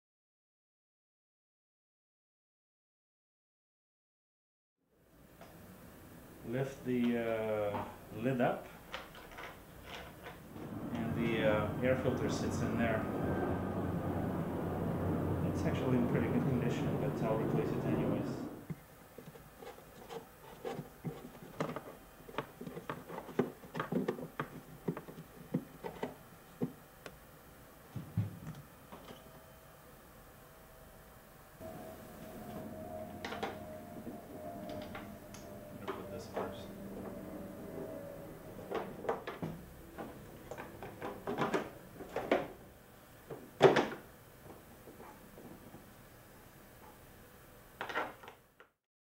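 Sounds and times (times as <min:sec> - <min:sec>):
plastic parts knocking and clattering: 0:19.9 - 0:26.8, 0:39.1 - 0:42.6.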